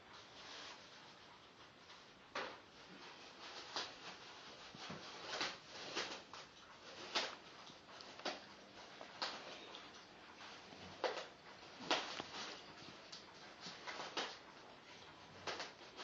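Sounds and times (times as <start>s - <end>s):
plastic bags crinkling and rustling: 2.8s - 14.5s.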